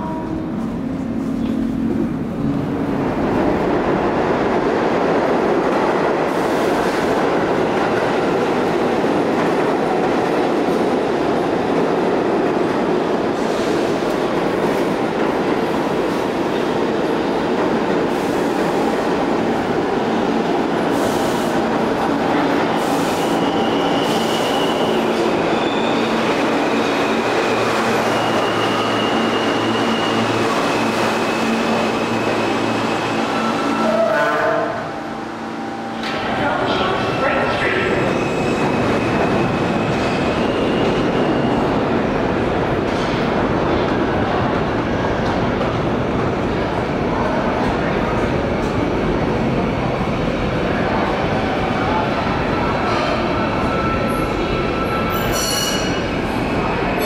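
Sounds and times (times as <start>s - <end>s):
train wheels rumbling on rail: 0.0s - 34.9s, 35.8s - 57.0s
high-pitched brake squeals: 23.0s - 26.3s, 27.9s - 32.3s, 52.8s - 56.2s.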